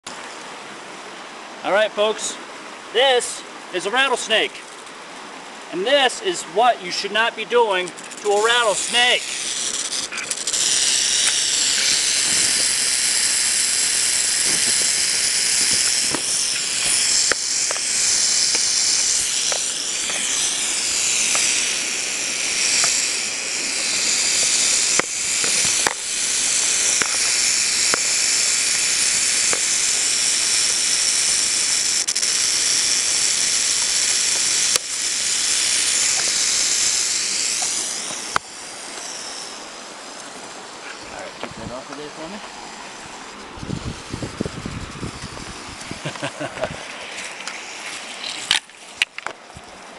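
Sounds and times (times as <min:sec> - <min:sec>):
rattlesnake rattle buzzing: 0:07.0 - 0:49.9
sharp clicks: 0:07.8 - 0:39.1.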